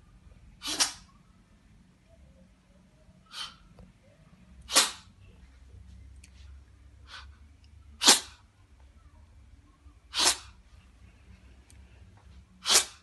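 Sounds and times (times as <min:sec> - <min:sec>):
cat sneezing: 0:00.6 - 0:01.1, 0:03.3 - 0:03.6, 0:04.6 - 0:05.1, 0:08.0 - 0:08.4, 0:10.1 - 0:10.6, 0:12.6 - 0:13.0.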